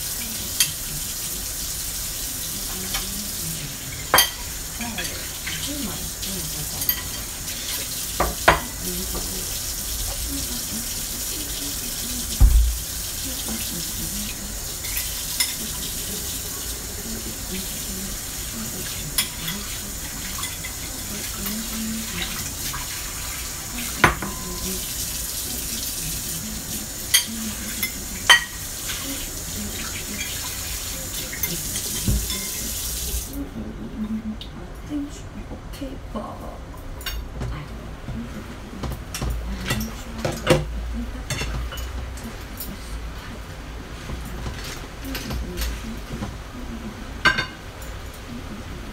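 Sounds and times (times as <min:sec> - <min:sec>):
dishes and pans clinking: 0:03.9 - 0:05.7, 0:06.7 - 0:09.3, 0:23.8 - 0:24.7, 0:27.1 - 0:29.1, 0:31.3 - 0:32.7, 0:38.8 - 0:40.7, 0:41.3 - 0:42.8, 0:47.2 - 0:47.9
tap running into a sink: 0:12.3 - 0:13.6.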